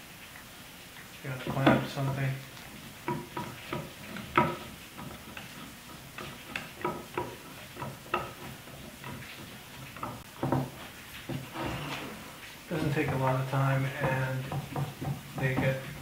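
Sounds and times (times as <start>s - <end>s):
wooden clamp clacking: 3.0s - 11.5s, 12.8s - 16.0s.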